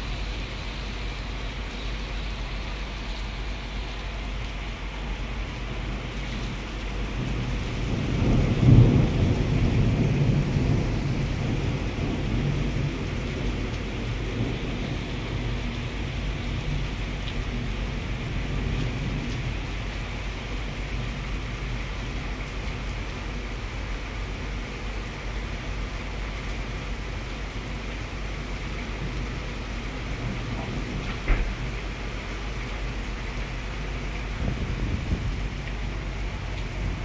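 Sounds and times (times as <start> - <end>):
heavy rain: 0.0 - 37.0
thunder rumble: 5.8 - 21.4, 28.9 - 37.0.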